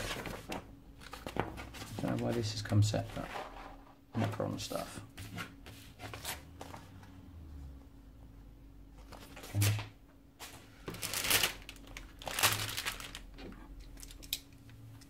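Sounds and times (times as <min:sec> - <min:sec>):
plastic bag crinkling: 0:10.8 - 0:14.4.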